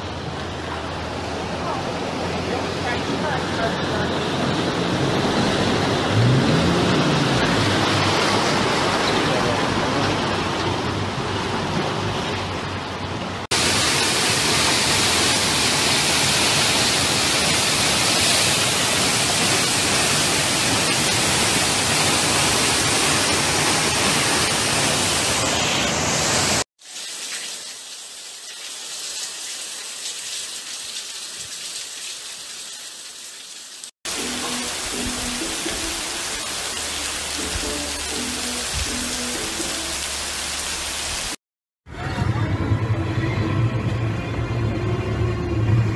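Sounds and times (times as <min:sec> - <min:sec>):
rushing floodwater: 0:00.0 - 0:41.4
heavy rain: 0:00.0 - 0:44.1
truck splashing through water: 0:00.2 - 0:25.0.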